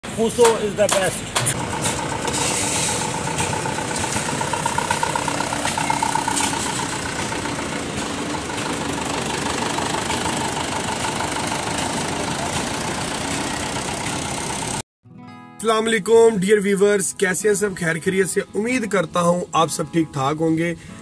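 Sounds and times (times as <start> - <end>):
diesel truck engine idling: 1.2 - 14.8.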